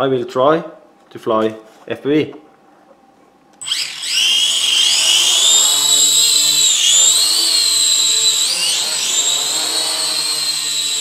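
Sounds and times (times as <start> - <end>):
toy drone motors whining: 3.6 - 11.0.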